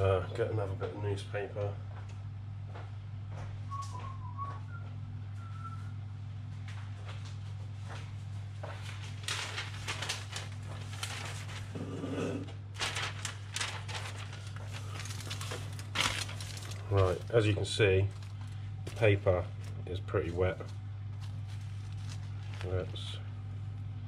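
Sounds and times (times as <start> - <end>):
steady low hum: 0.0 - 24.0
newspaper rustling: 8.6 - 23.5.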